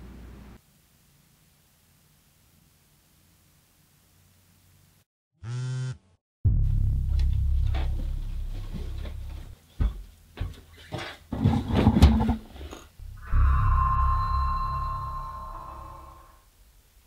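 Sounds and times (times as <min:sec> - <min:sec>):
deep rumble: 0:13.0 - 0:16.4.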